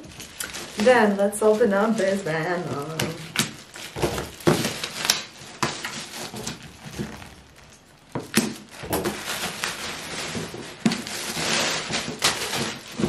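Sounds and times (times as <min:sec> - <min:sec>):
plastic wrapping crinkling: 0:00.0 - 0:13.0
scissors snipping plastic: 0:02.6 - 0:13.0.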